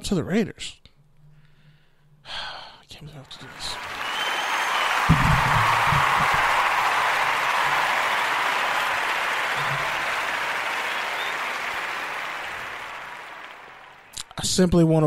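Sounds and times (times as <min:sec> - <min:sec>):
crowd applauding: 0:03.3 - 0:14.2.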